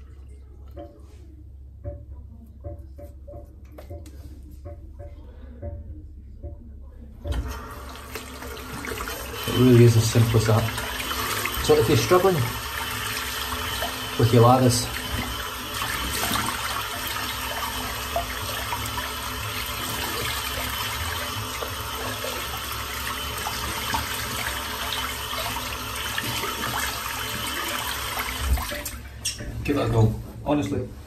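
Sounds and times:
tap running into sink: 0:07.2 - 0:29.6.

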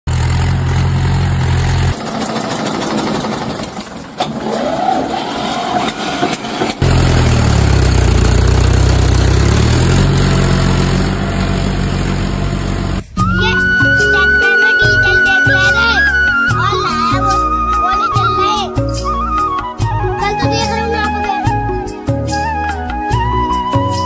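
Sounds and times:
tractor engine running: 0:00.1 - 0:13.4.

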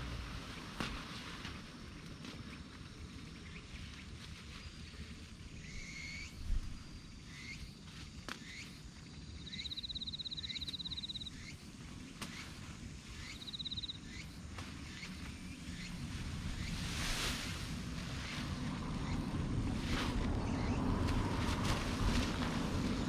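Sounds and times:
low rumble: 0:15.6 - 0:23.0.

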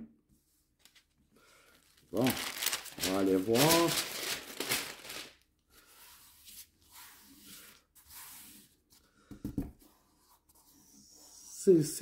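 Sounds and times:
paper rustling: 0:00.8 - 0:07.8.

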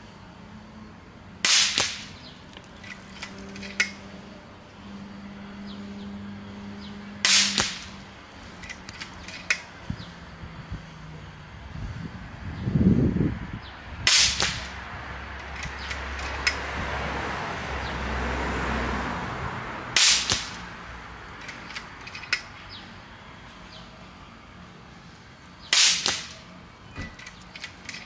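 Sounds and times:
air rifle shots: 0:01.4 - 0:02.2, 0:07.2 - 0:08.0, 0:14.1 - 0:14.8, 0:20.0 - 0:20.7, 0:25.7 - 0:26.5.

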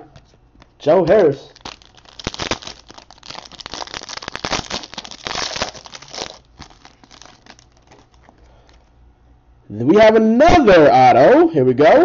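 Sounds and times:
foil wrapper crinkling: 0:00.6 - 0:08.9.

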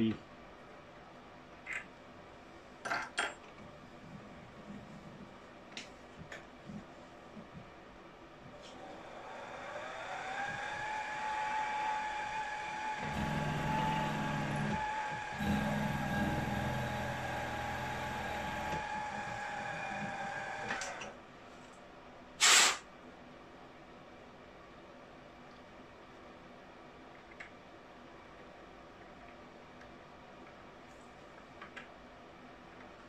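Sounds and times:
milling spindle motor whining: 0:08.9 - 0:21.1.

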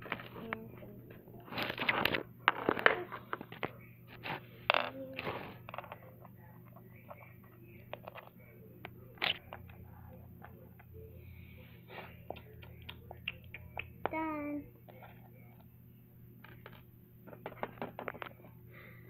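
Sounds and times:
plastic toy pieces on wooden floor: 0:01.5 - 0:06.0, 0:07.9 - 0:08.4, 0:16.4 - 0:18.5.

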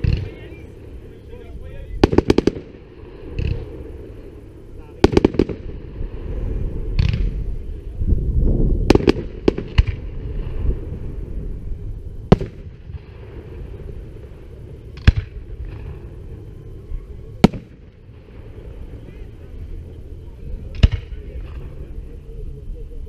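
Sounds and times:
low rumble: 0:00.0 - 0:23.0
firework shells bursting: 0:02.0 - 0:06.0, 0:06.8 - 0:07.9, 0:08.8 - 0:10.9, 0:12.2 - 0:16.5, 0:17.4 - 0:18.9.

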